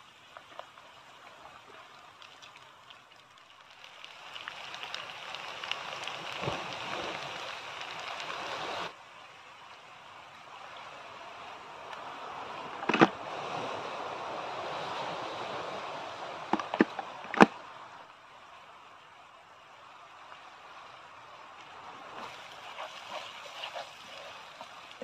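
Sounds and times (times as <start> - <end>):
light ticks: 0.3 - 8.4
onions sizzling in a frying pan: 3.6 - 8.9.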